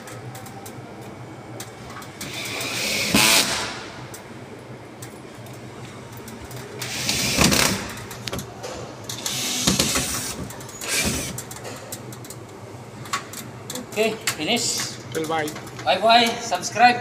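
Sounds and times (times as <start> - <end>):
cordless drill driving screws: 9.3 - 11.4.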